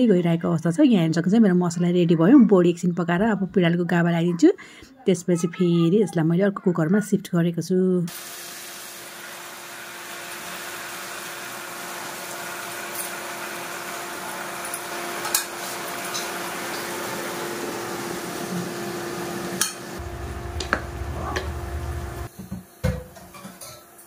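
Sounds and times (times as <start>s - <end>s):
curry hissing in pot: 8.1s - 22.3s
low rumble: 20.0s - 22.3s.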